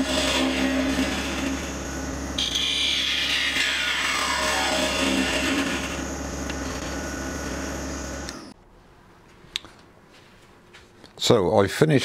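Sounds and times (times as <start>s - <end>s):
gouge cutting wood: 0.0s - 1.8s, 2.4s - 6.1s
wood lathe humming: 0.0s - 8.5s.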